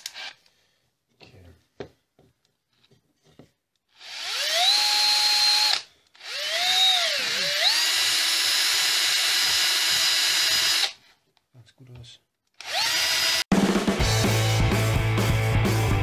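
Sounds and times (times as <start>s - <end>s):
cordless drill with wire brush: 0.0s - 0.4s, 3.9s - 11.0s, 12.6s - 13.5s.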